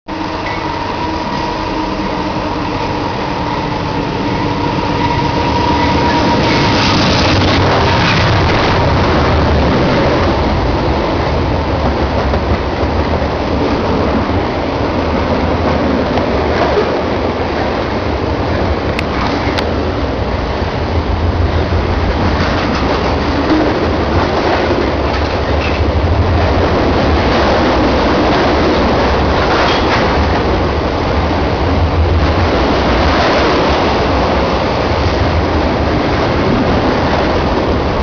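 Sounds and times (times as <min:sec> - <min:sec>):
diesel locomotive engine passing: 0:00.1 - 0:38.0
freight cars rumbling on rails: 0:00.1 - 0:38.0.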